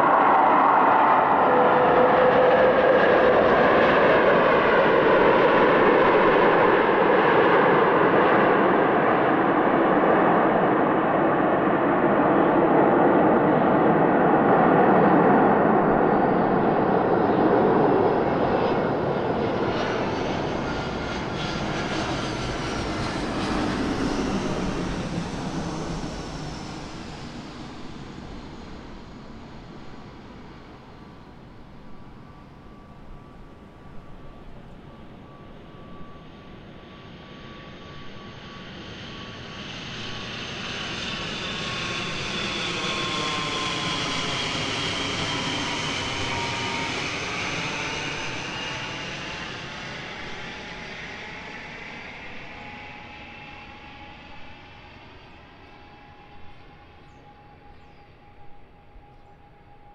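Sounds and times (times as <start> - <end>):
high jet whine: 0.0 - 59.9
jet airliner engines roaring: 0.0 - 59.9.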